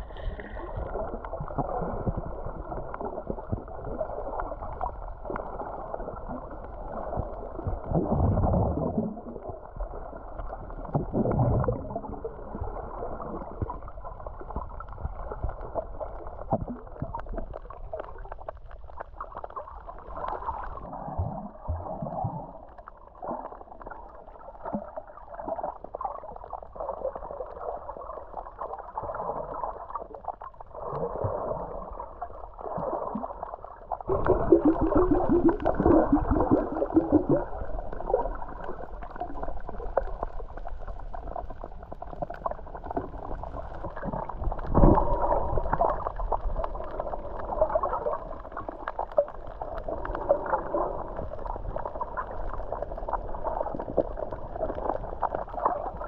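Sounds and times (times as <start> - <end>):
muffled underwater gurgling: 0.0 - 56.0.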